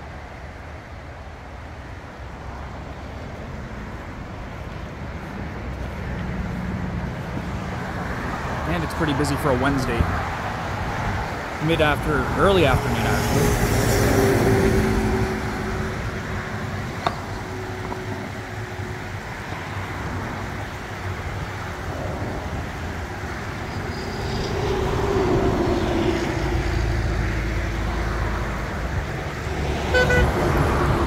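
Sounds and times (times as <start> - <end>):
highway traffic passing: 0.0 - 31.0.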